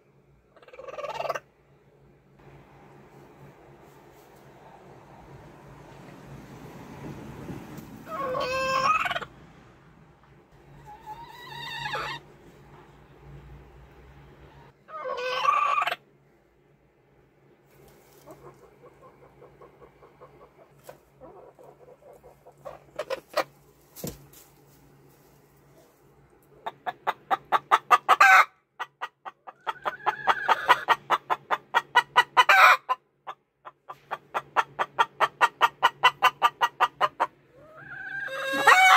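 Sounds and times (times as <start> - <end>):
hens clucking rapidly: 0.5 - 1.5, 8.0 - 9.3, 14.6 - 16.0, 17.8 - 24.2, 26.5 - 38.9
hen squawk: 8.1 - 9.3.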